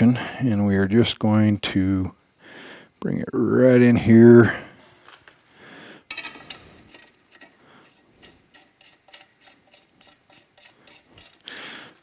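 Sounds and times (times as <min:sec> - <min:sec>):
light metal scraping: 0:06.1 - 0:12.0.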